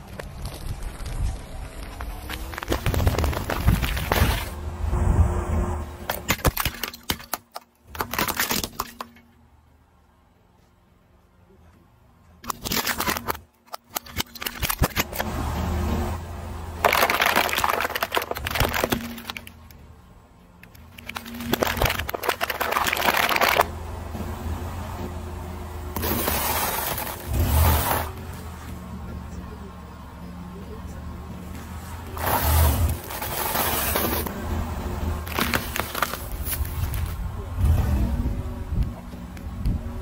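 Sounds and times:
low steady hum: 0.0s - 40.0s
object shattering under tyre: 2.2s - 4.6s, 6.1s - 9.3s, 16.8s - 19.7s, 20.8s - 23.7s, 26.0s - 28.2s, 35.2s - 37.2s
shards clattering on asphalt: 2.2s - 4.6s, 6.0s - 9.4s, 16.8s - 19.8s, 25.9s - 28.7s, 31.5s - 34.3s, 35.2s - 37.2s.

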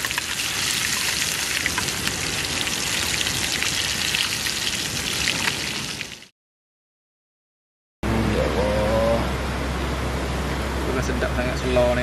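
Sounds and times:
fish frying in hot oil: 0.0s - 6.3s.

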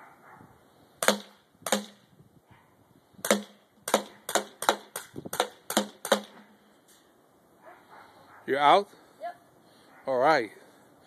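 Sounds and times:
bb pistol shots: 1.0s - 2.0s, 3.2s - 6.5s.

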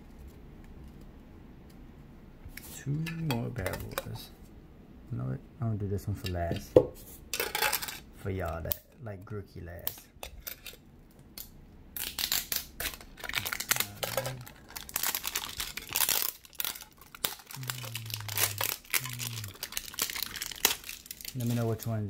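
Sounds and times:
plastic shrink-wrap crinkling: 12.0s - 22.0s.

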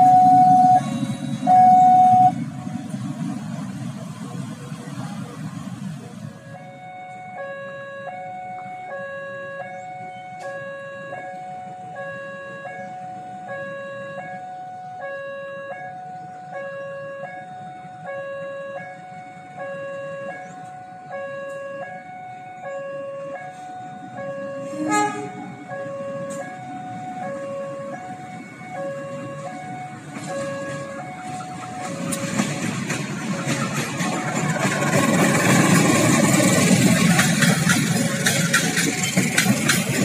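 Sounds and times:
level crossing two-tone alarm: 0.0s - 2.4s, 6.4s - 24.8s, 25.4s - 32.5s
motorbike engines: 0.0s - 40.0s.

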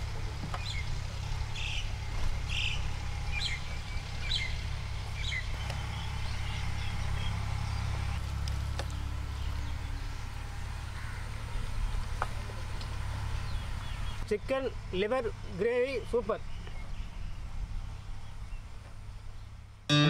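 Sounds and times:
bird chirping: 1.5s - 8.2s.

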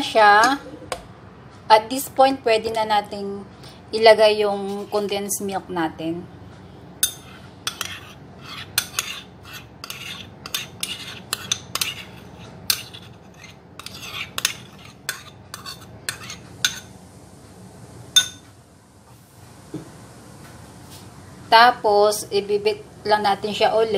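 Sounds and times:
metal spoon clinking and scraping: 7.0s - 16.8s.

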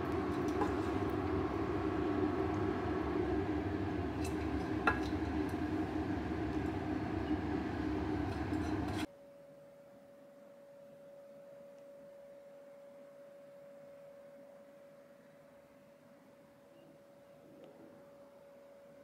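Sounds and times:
mechanical hum: 0.0s - 19.0s
faint steady tone: 9.0s - 19.0s.

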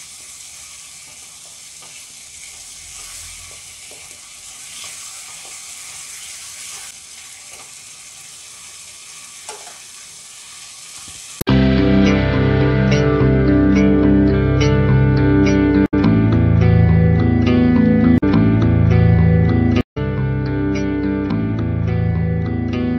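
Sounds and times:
sweet sizzling and bubbling: 0.0s - 11.5s.

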